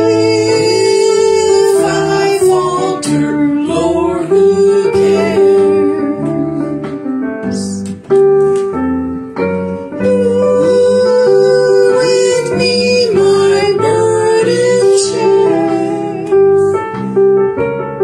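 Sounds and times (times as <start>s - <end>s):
woman singing a hymn: 0.0s - 6.9s, 10.0s - 16.7s
piano accompaniment: 0.0s - 18.0s.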